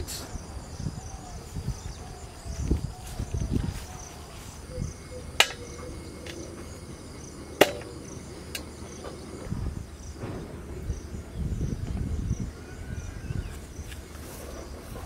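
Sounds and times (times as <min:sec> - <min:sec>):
crickets chirping: 0:00.0 - 0:15.0
footsteps in grass: 0:02.5 - 0:04.8, 0:13.4 - 0:15.0.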